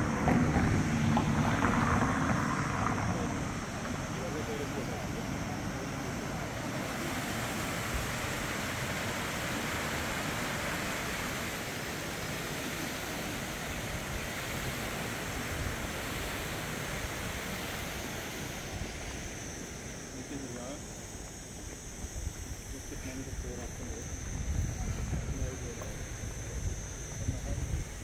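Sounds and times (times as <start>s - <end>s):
river water rushing over rocks: 5.4s - 18.8s
wind buffeting microphone: 22.0s - 28.0s.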